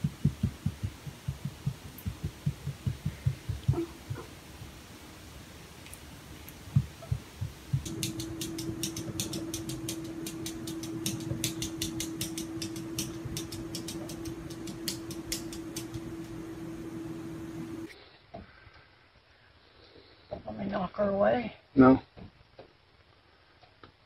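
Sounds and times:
cat paws patting a mirror: 0.0 - 4.7
steady low hum: 0.0 - 18.0
cat claws tapping on glass: 7.8 - 16.0.

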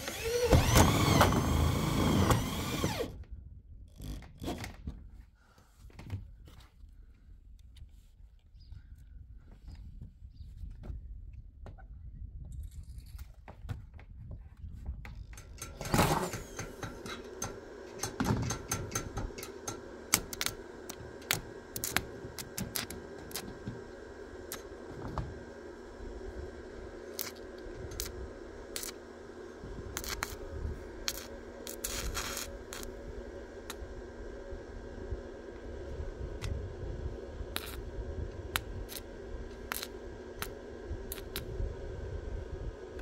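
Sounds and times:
steady welder hum: 0.0 - 3.2, 15.4 - 43.0
arc welding pops and crackles: 15.4 - 23.9, 24.5 - 25.0, 27.1 - 29.0, 29.9 - 30.4, 31.0 - 33.0, 37.5 - 37.9, 38.5 - 41.6.

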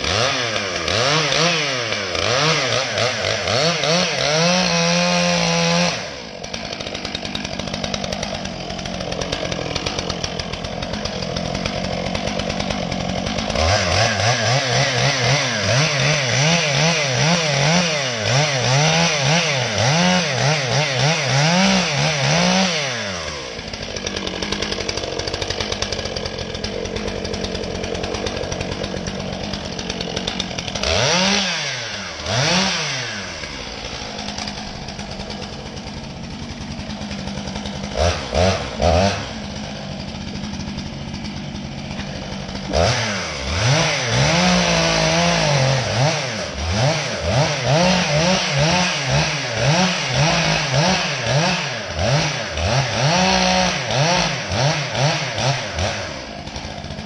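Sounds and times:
chainsaw cutting: 0.0 - 57.0
chainsaw idling and revving: 0.0 - 57.0.

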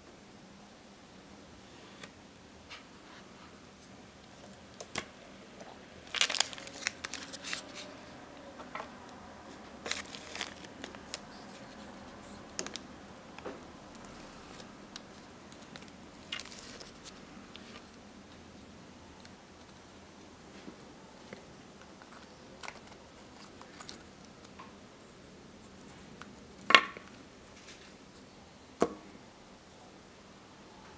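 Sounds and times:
paper rustling: 6.1 - 8.2, 9.5 - 12.9, 13.9 - 17.9.

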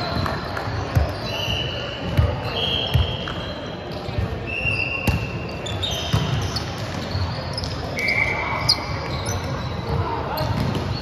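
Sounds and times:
sneakers squeaking on hardwood: 5.0 - 11.0.

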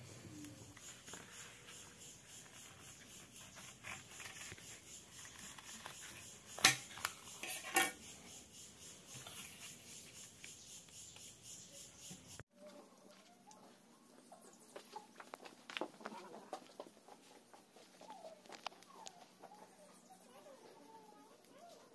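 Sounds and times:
knife tapping and scraping on tabletop: 6.6 - 8.0.

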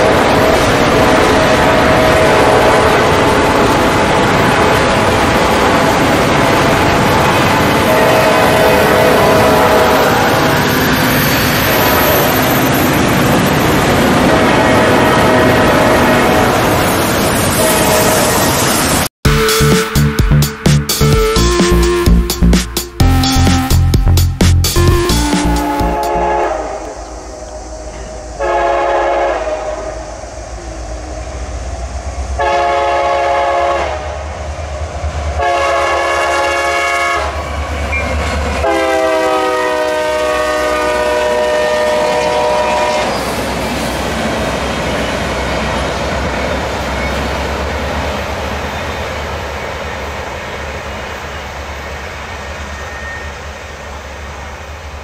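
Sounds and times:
train air horn blasts: 0.0 - 3.6, 7.7 - 10.5, 17.6 - 18.6, 25.0 - 30.0, 32.4 - 34.2, 35.4 - 37.4, 38.6 - 43.3.

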